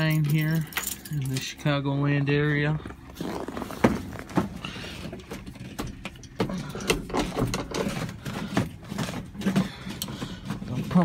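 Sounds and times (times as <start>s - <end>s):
rustling: 2.8s - 5.8s.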